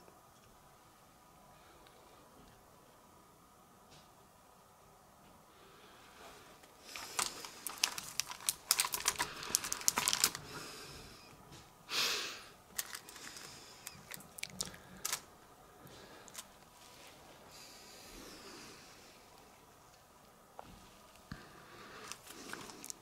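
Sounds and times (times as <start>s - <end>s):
plastic bags crinkling: 6.8s - 10.6s, 12.7s - 15.3s, 22.0s - 23.0s.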